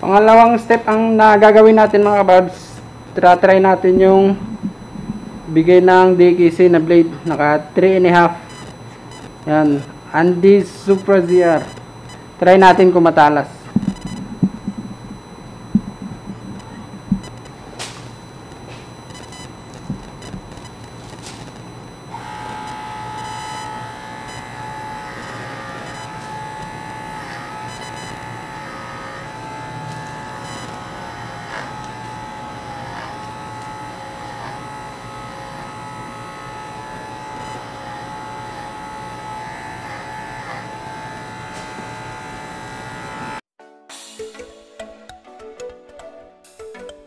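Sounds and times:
hair clipper motor humming: 2.9 - 7.1, 13.6 - 43.4.

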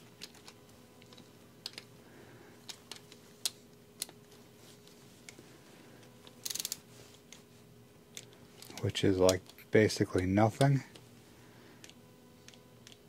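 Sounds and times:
ratchet wrench clicking: 6.4 - 6.8.

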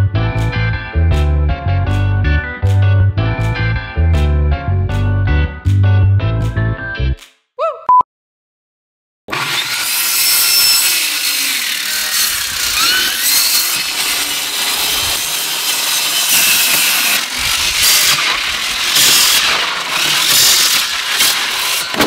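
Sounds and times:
power saw cutting meat: 9.3 - 22.0.

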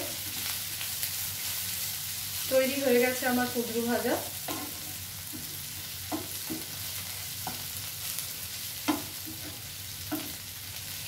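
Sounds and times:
vegetables sizzling in a frying pan: 0.0 - 11.0
spatula knocking and scraping pan: 4.4 - 6.8, 7.4 - 7.7, 8.8 - 10.4.

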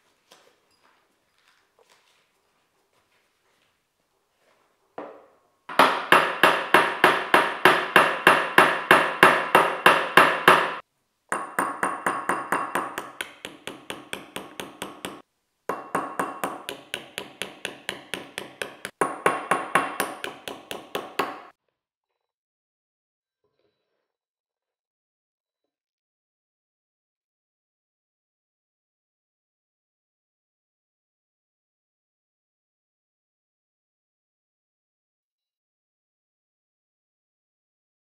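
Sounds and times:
hammer tapping nail into ceramic bowl: 5.7 - 21.5.

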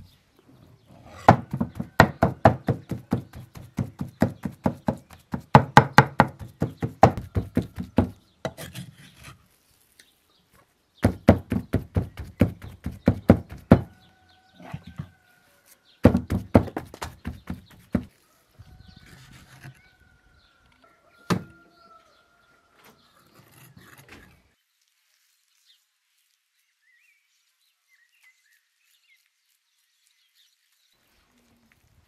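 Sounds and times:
cleaver chopping meat on wood: 1.3 - 8.6, 11.0 - 14.0, 16.0 - 18.1, 21.3 - 21.5.

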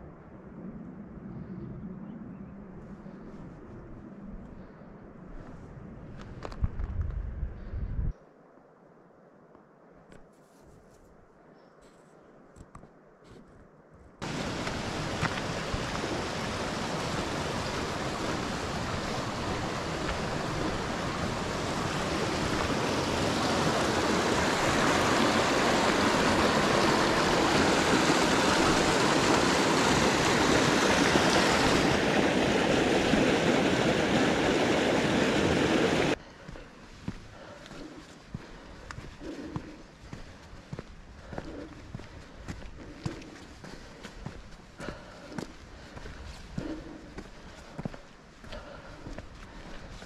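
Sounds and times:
mountain stream rushing: 14.2 - 36.2.

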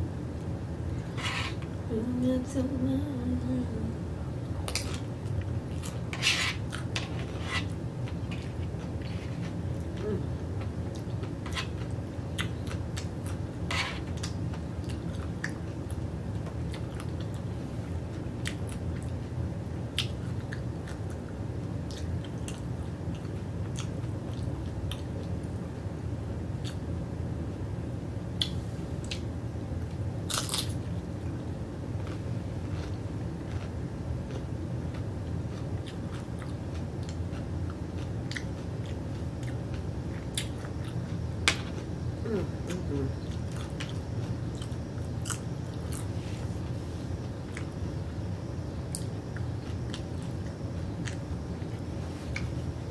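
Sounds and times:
low hum: 0.0 - 6.2
person chewing crunchy food: 4.6 - 16.0, 30.3 - 30.8, 31.9 - 46.7.

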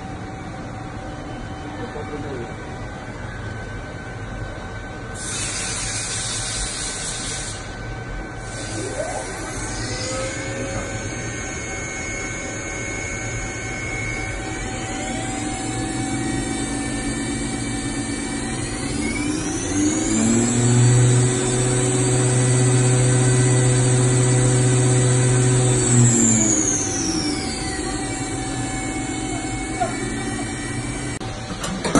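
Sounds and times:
hiss: 5.2 - 7.7
machine spindle whine: 7.6 - 31.9.

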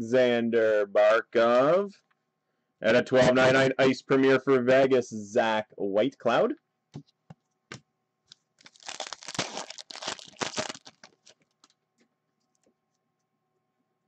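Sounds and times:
foil wrapper tearing and crinkling: 8.6 - 11.7.

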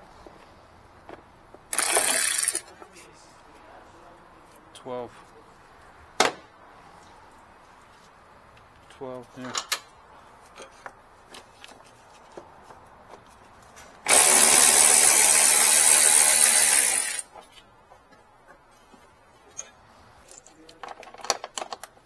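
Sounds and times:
power tool hissing: 14.1 - 17.2
tool handling clicks and taps: 20.3 - 22.0.

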